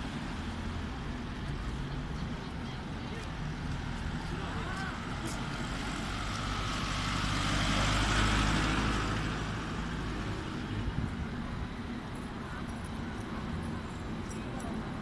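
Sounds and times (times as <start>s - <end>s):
road traffic hum: 0.0s - 15.0s
truck driving past: 3.3s - 12.2s.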